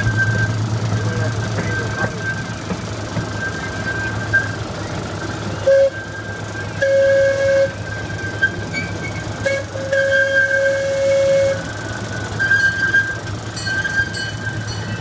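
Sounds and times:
train rumble and whine: 0.0s - 15.0s
train whistle: 5.6s - 8.6s, 9.4s - 11.7s.

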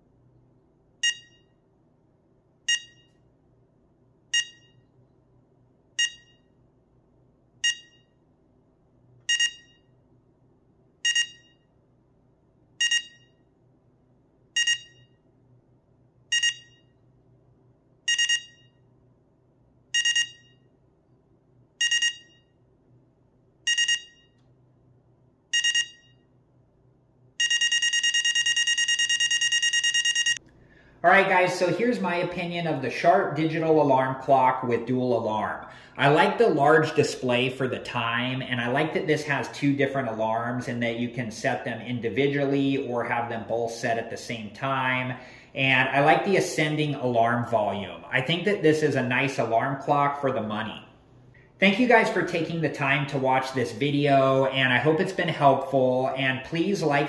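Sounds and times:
alarm clock beeping: 1.0s - 1.6s, 2.7s - 3.2s, 4.3s - 4.9s, 6.0s - 6.6s, 7.6s - 8.2s, 9.3s - 10.0s, 11.0s - 11.7s, 12.8s - 13.5s, 14.6s - 15.2s, 16.3s - 17.0s, 18.1s - 18.8s, 20.0s - 20.7s, 21.8s - 22.6s, 23.7s - 24.4s, 25.5s - 26.3s, 27.4s - 30.4s.

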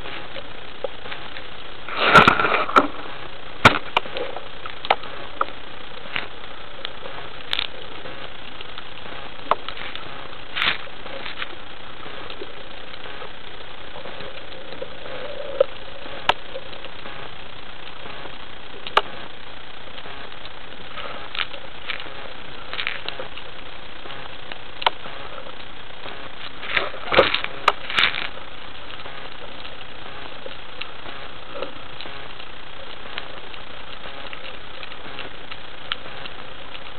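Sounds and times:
underwater hiss: 13.2s - 17.5s.

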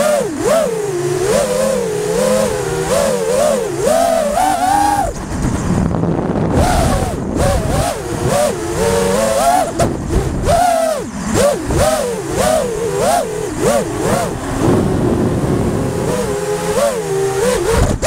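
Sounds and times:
drone motors whining: 0.0s - 18.0s
rushing wind: 0.0s - 18.0s.

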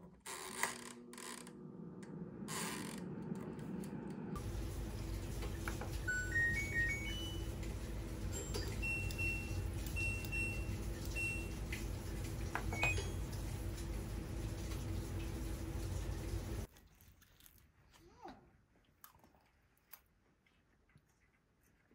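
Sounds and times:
electronic beep jingle: 6.0s - 7.6s, 8.3s - 11.6s.

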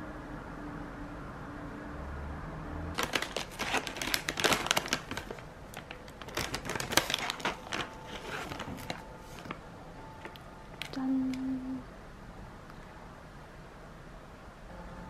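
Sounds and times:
plastic snack bag crinkling: 3.0s - 9.6s.

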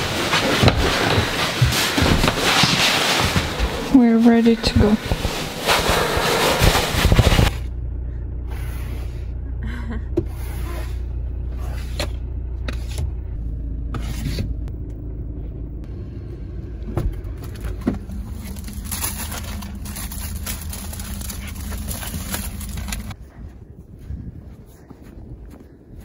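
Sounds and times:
car cabin rumble: 3.5s - 23.2s.

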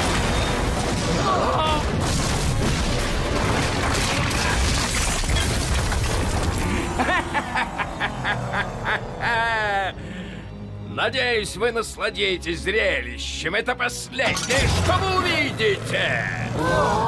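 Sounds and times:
cartoon explosions booming: 0.0s - 6.6s
man laughing: 6.6s - 10.1s.

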